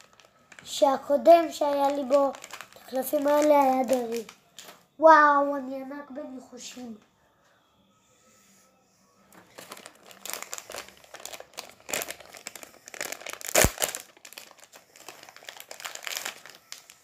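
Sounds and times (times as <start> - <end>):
plastic wrapper crinkling: 0.0 - 4.8, 9.4 - 17.0.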